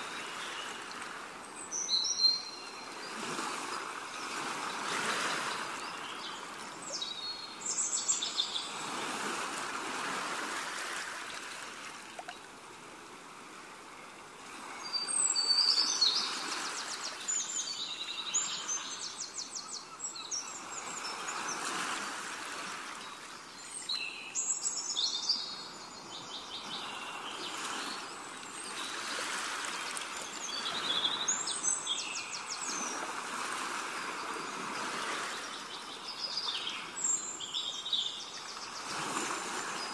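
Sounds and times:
flowing water: 0:00.0 - 0:39.9
birds chirping: 0:29.9 - 0:33.0.

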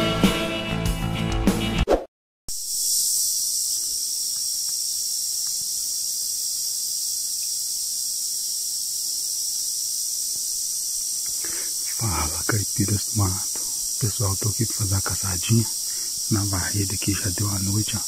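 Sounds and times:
crickets chirping: 0:02.5 - 0:18.0.

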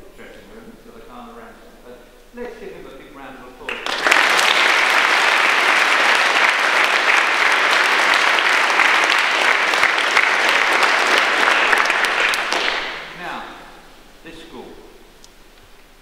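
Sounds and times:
children applauding: 0:03.7 - 0:13.1.

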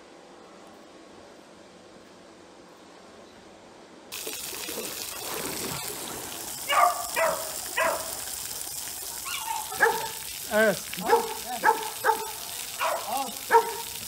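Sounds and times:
water spraying from sprinkler: 0:04.1 - 0:14.0
dog barking: 0:06.7 - 0:08.2, 0:09.2 - 0:10.2, 0:11.0 - 0:14.0.

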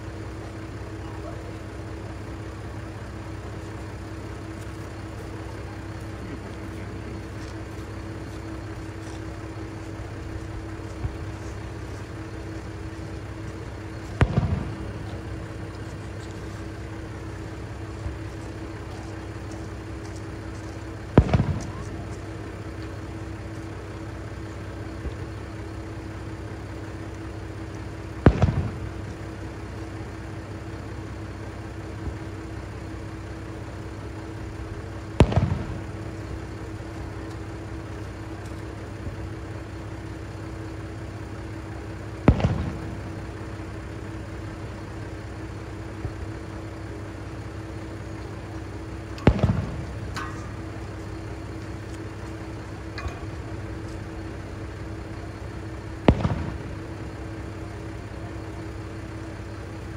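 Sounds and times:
diesel railcar idling hum: 0:00.0 - 0:59.9
distant fireworks booming: 0:09.4 - 0:16.2, 0:20.8 - 0:24.1, 0:27.4 - 0:29.8, 0:35.1 - 0:37.3, 0:41.2 - 0:45.2, 0:49.0 - 0:59.3.

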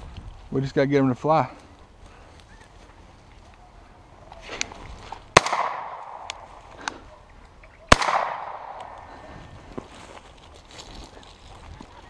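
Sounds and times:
shotgun shots: 0:05.4 - 0:06.6, 0:07.9 - 0:09.2.

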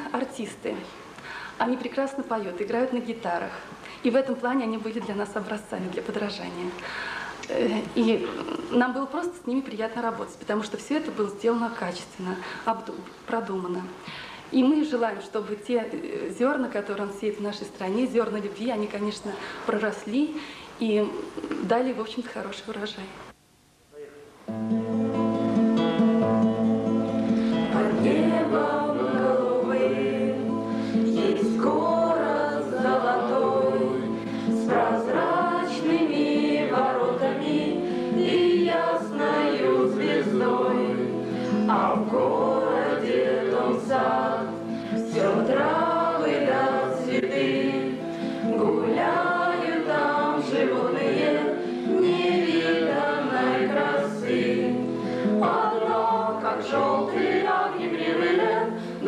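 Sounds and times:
acoustic guitar: 0:24.4 - 0:59.0
girls singing in unison: 0:27.6 - 0:59.0.

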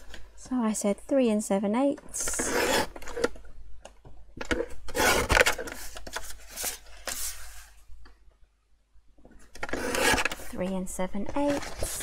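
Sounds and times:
paper trimmer slicing: 0:02.4 - 0:03.0, 0:04.9 - 0:05.6, 0:09.6 - 0:10.4
card rustling and scraping: 0:04.4 - 0:07.8, 0:09.4 - 0:10.6, 0:11.2 - 0:12.0.

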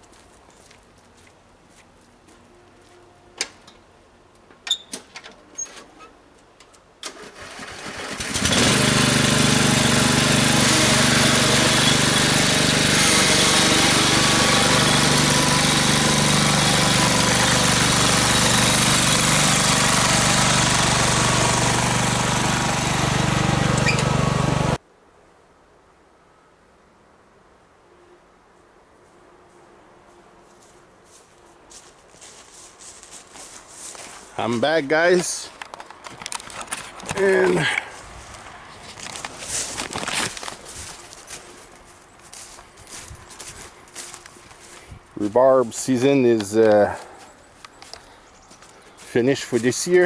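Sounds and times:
lawn tractor engine starting and running: 0:07.0 - 0:24.8, 0:33.4 - 0:50.0.

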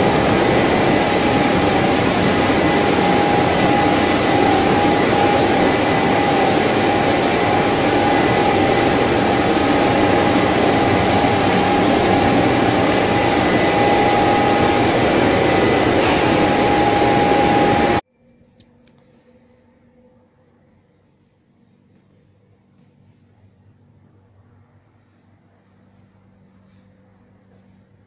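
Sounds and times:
machine whine: 0:00.0 - 0:18.0
motors and air blowers rushing: 0:00.0 - 0:18.0.

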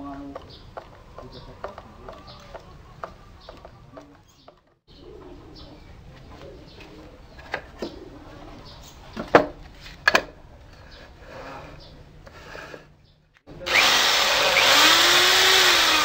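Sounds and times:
birds cooing: 0:00.0 - 0:09.4.

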